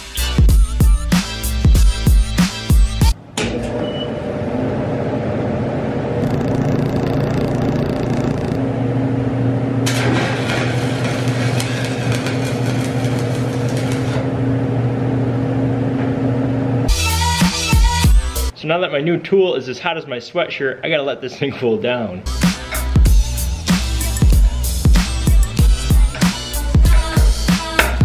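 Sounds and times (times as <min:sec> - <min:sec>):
welding arc crackling: 0:06.2 - 0:08.6, 0:09.8 - 0:14.4
welding machine humming: 0:06.2 - 0:16.2.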